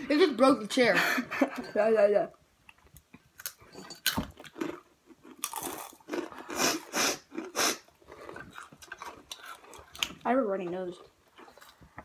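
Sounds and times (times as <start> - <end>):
crunching and chewing chips: 3.1 - 12.0.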